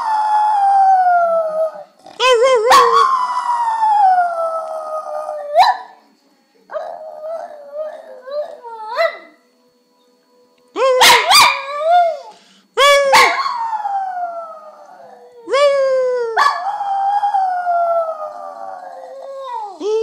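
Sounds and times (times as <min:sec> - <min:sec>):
small dog howling: 0:00.0 - 0:05.9, 0:10.8 - 0:20.0.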